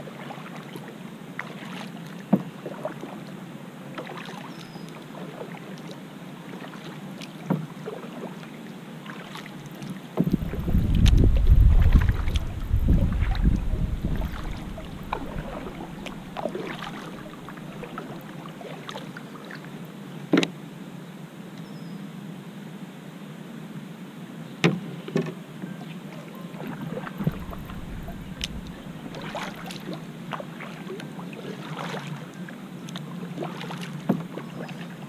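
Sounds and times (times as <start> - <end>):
paddle splashing and dripping: 0.0 - 20.5, 26.1 - 35.0
wind buffeting microphone: 10.2 - 17.9, 27.2 - 30.0.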